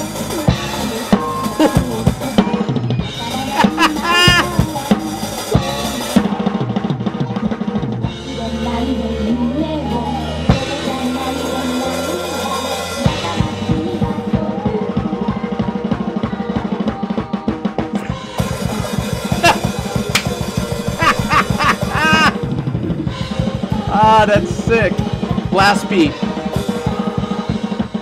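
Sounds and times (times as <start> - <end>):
backing track with bass notes: 0.0 - 16.0, 17.3 - 28.0
heavy metal drumming: 3.4 - 6.0, 18.0 - 25.7.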